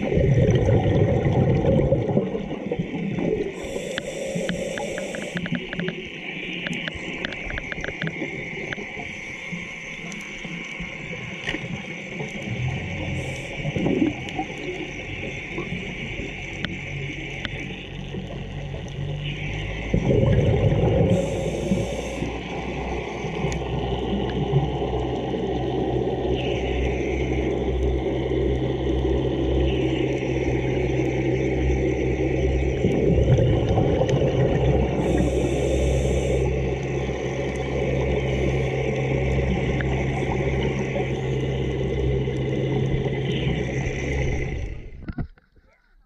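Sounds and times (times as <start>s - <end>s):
gush of exhaled bubbles: 0.0s - 3.6s, 12.2s - 15.8s, 19.8s - 22.7s, 32.7s - 36.4s
regulator breathing underwater: 3.2s - 5.6s, 12.9s - 14.3s, 20.0s - 23.0s, 34.7s - 44.7s
clicks: 3.9s - 8.9s.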